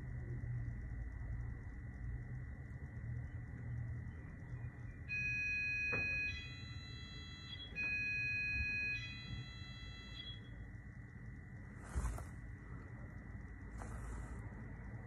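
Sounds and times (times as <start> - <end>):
two-note electronic door chime: 5.1 - 10.5.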